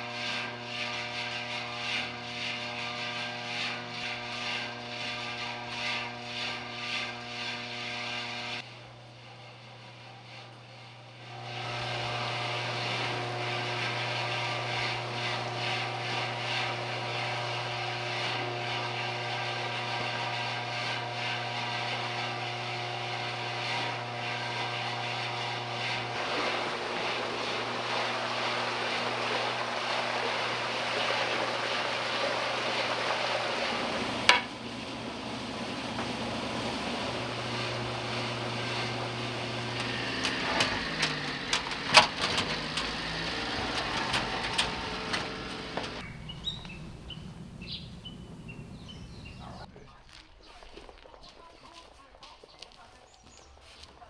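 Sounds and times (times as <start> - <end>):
machine humming and whining: 0.0 - 49.7
water splashing and hissing: 26.2 - 34.3.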